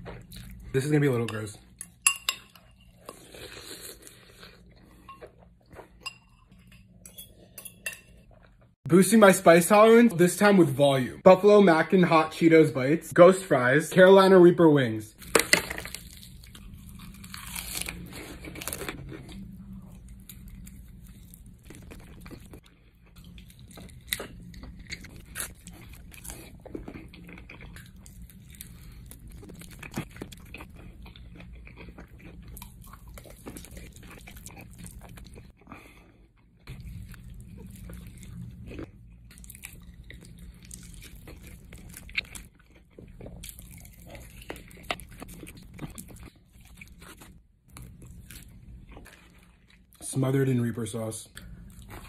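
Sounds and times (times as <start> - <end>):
crunchy chewing: 16.0 - 49.8.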